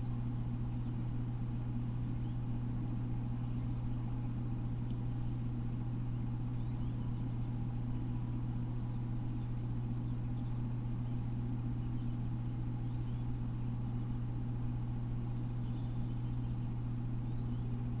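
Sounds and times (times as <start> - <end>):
electrical hum and hiss: 0.0 - 18.0
faint high chirps: 15.0 - 17.9.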